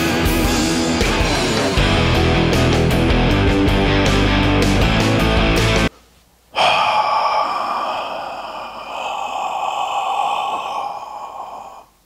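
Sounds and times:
man sighing: 6.5 - 12.0.

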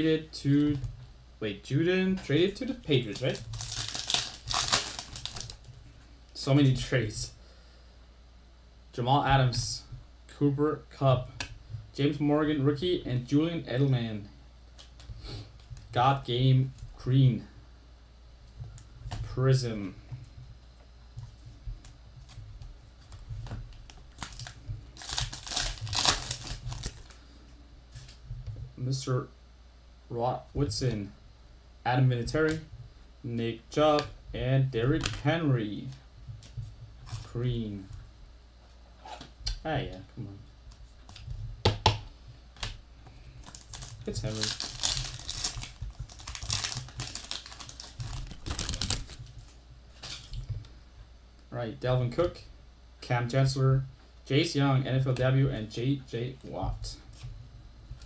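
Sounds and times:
foil wrapper crinkling: 2.9 - 5.7, 23.1 - 27.2, 43.4 - 50.5
trading cards clicking and rubbing: 21.2 - 27.2, 42.6 - 50.4.

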